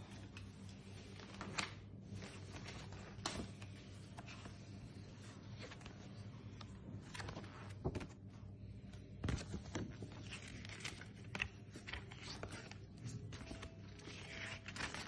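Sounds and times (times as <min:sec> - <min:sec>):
low steady hum: 0:00.0 - 0:15.0
paper and card rustling: 0:00.0 - 0:15.0
sharp paper crinkles: 0:09.4 - 0:15.0.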